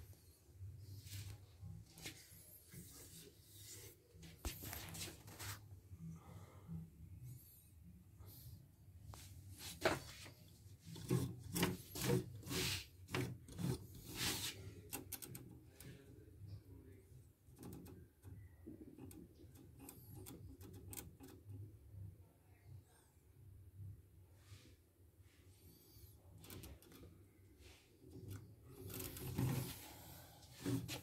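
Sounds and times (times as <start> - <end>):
plastic and metal scraping: 9.6 - 16.0, 26.3 - 31.0.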